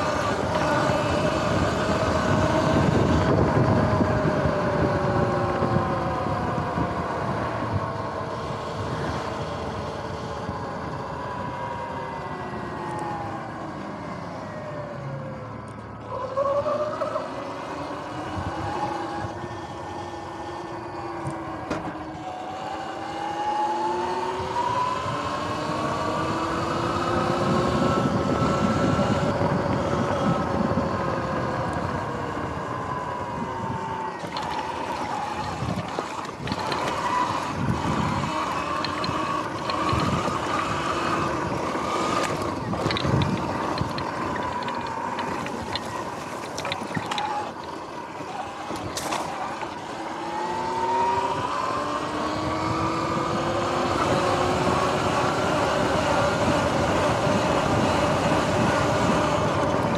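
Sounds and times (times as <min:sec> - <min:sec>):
tyre and wind noise: 0:00.0 - 0:13.6, 0:24.1 - 0:59.9
electric motor whining: 0:17.7 - 0:59.9
knocks and rattles over rough ground: 0:34.2 - 0:49.9.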